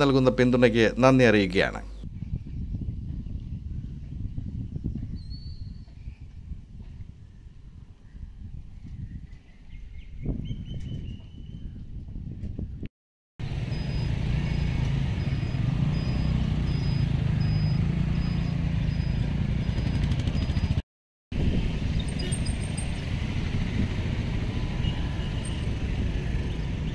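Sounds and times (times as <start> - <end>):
road traffic rumble: 13.4 - 26.9
faint high chirp: 13.7 - 20.8.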